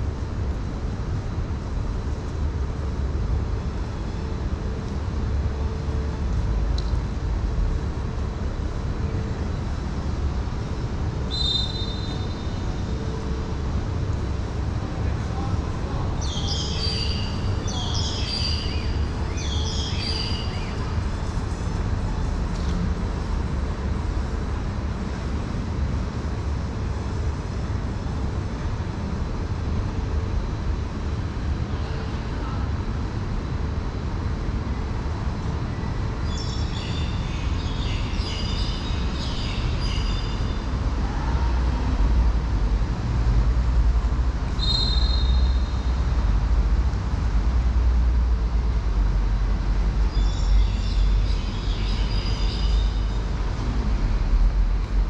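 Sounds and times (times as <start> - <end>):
low outdoor rumble: 0.0 - 55.0
small birds chirping: 16.2 - 21.0.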